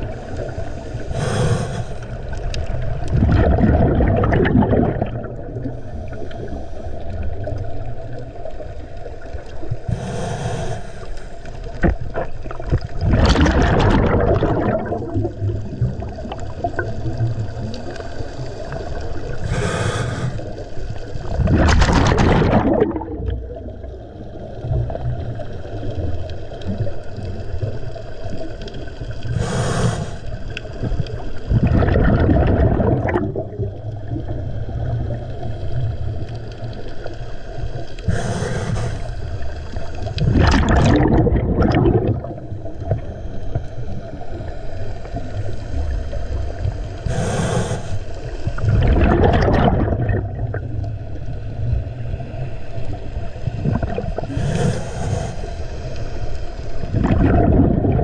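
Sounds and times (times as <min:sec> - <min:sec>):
exhaled bubbles: 0:00.0 - 0:52.2, 0:52.8 - 0:58.0
regulator inhalation hiss: 0:00.1 - 0:02.2, 0:09.9 - 0:11.6, 0:19.4 - 0:20.6, 0:29.3 - 0:30.4, 0:38.0 - 0:39.4, 0:47.0 - 0:48.2, 0:54.3 - 0:55.8.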